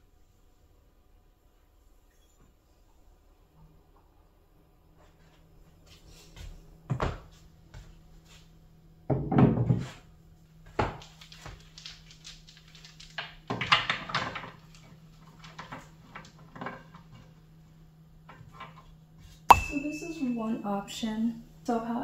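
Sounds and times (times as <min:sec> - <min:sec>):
clatter of handling objects: 0:10.8 - 0:17.4.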